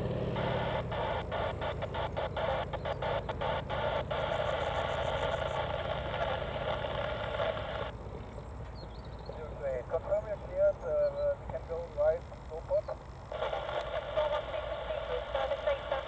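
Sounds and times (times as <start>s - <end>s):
loud steady buzz: 0.0s - 8.6s
aircraft engine droning: 0.0s - 16.0s.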